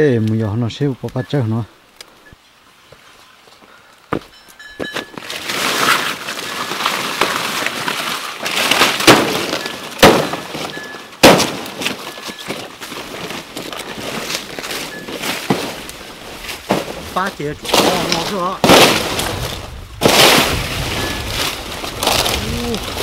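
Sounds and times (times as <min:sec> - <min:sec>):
banana leaves rustling: 0:00.0 - 0:23.0
sharp cracks of leaves: 0:05.2 - 0:23.0.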